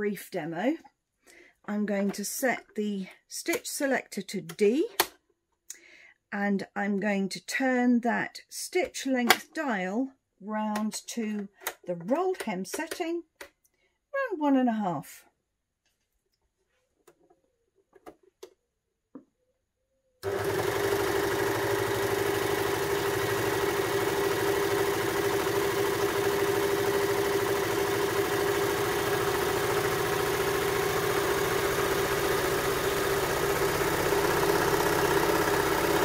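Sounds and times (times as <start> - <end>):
overlocker sewing: 20.2 - 36.0.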